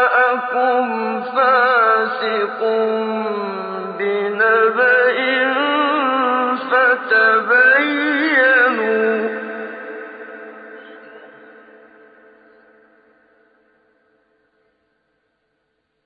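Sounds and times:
man reciting melodically: 0.0s - 12.1s.

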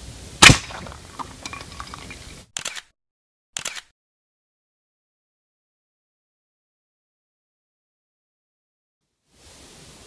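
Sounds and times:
short bursts of noise: 2.5s - 2.9s, 3.6s - 3.9s.

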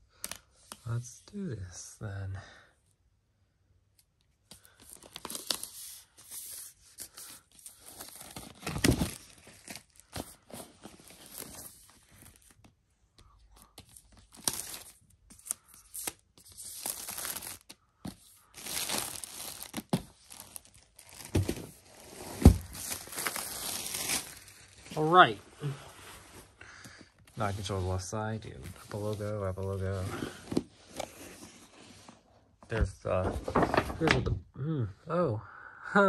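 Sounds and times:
plastic shrink wrap crinkling: 13.8s - 17.8s, 18.4s - 25.2s.

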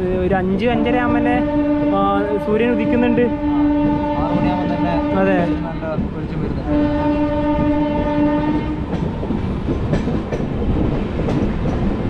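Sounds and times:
train rumbling: 0.0s - 12.0s
locomotive horn blast: 0.7s - 5.8s, 6.6s - 8.9s
wheels clacking over rail joints: 2.4s - 12.0s.

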